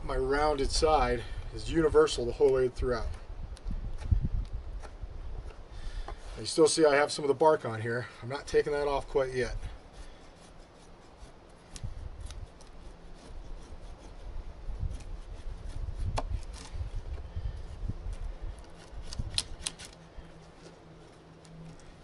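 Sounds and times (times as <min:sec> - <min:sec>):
knife scraping wood: 0:08.6 - 0:22.0.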